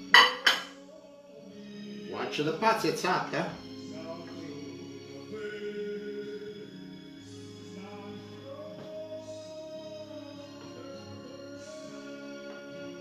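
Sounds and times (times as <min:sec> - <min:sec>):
background music: 0:00.0 - 0:13.0
person singing long notes: 0:03.8 - 0:13.0.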